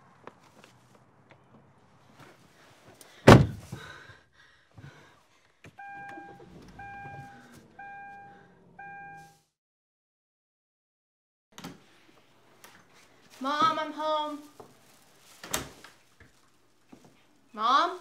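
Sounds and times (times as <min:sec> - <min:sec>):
car door slamming: 0:03.2 - 0:03.8
car warning chime: 0:05.8 - 0:09.4.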